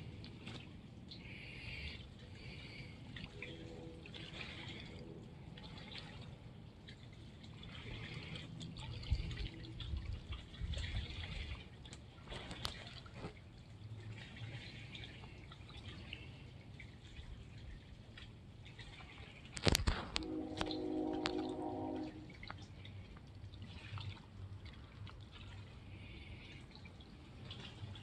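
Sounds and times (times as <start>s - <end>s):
trickling dripping splashes: 0.0s - 28.0s
water lapping at shore: 0.0s - 28.0s
distant train whistle: 20.0s - 22.4s.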